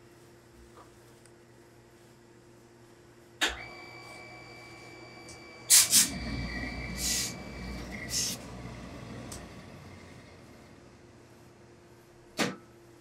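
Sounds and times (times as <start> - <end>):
steam hissing bursts: 5.7 - 10.8
low rumble of iron on cloth: 6.0 - 12.2.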